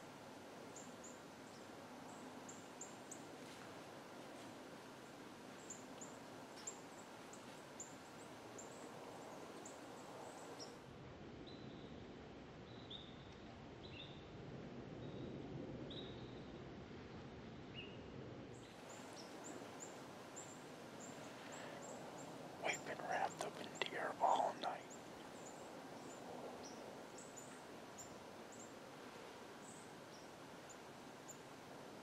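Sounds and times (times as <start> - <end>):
small birds chirping: 18.6 - 28.8
steady background noise: 18.6 - 32.0.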